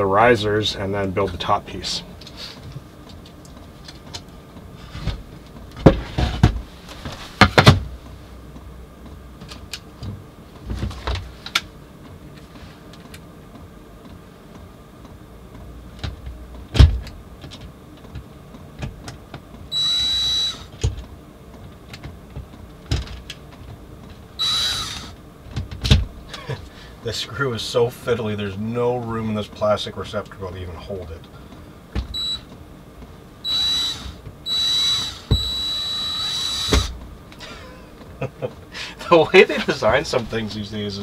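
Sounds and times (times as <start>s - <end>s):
knocks and clatter of wood: 5.8s - 7.9s
electric drill motor whirring: 19.7s - 20.8s, 24.4s - 25.2s, 32.1s - 32.4s, 33.4s - 37.0s.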